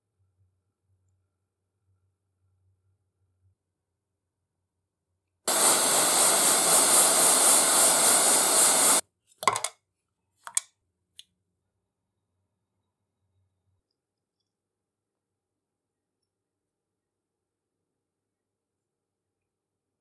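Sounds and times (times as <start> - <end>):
loud hiss of rushing air: 5.5 - 9.0.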